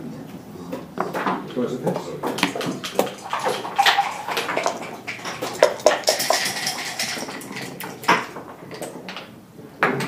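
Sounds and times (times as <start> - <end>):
dice rattling in a cup: 2.4 - 8.4
dice clattering on a board: 3.7 - 9.2.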